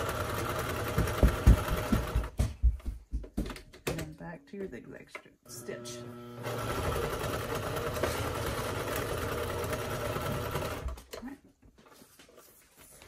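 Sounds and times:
sewing machine running: 0.0s - 2.3s, 5.5s - 11.0s.

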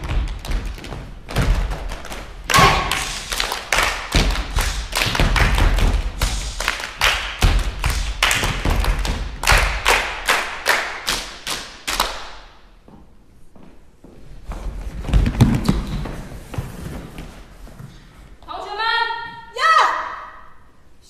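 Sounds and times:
foot stomps on wooden stage: 0.0s - 3.1s
rhythmic hand claps: 1.6s - 12.5s.

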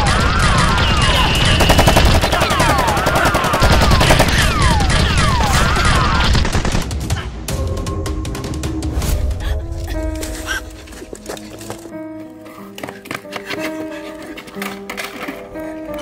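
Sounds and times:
automatic gunfire sound effects: 0.0s - 7.1s
falling ricochet whistles: 0.5s - 2.7s.

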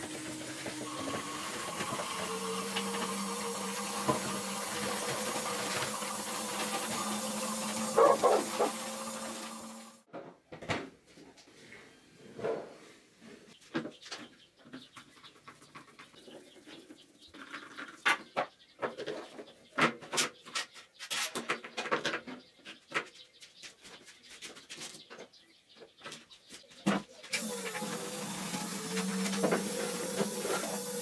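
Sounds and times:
motor humming: 0.0s - 10.0s, 27.4s - 31.0s.

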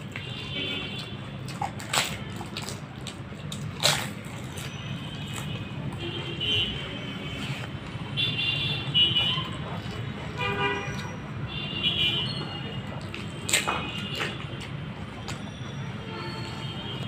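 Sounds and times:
street traffic hum: 0.0s - 17.0s
crisp shell crunching: 1.1s - 5.8s
vehicle horn toots: 10.4s - 12.7s.

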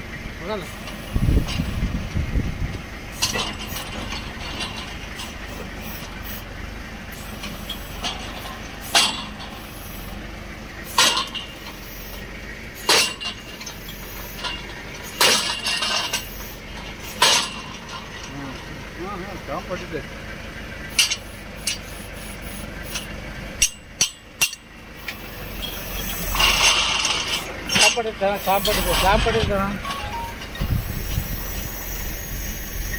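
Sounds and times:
drilling rig engine running: 0.0s - 32.9s.

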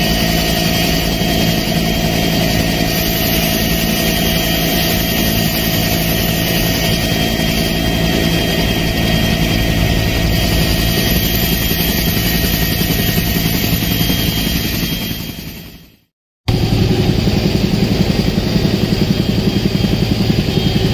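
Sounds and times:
high whine: 0.0s - 15.9s
helicopter engine and rotor drone: 0.0s - 20.9s.

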